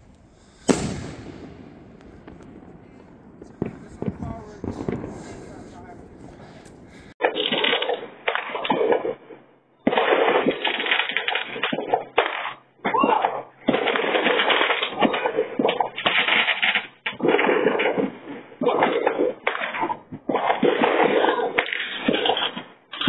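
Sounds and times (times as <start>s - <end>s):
firework crackling and banging: 0.0s - 9.2s.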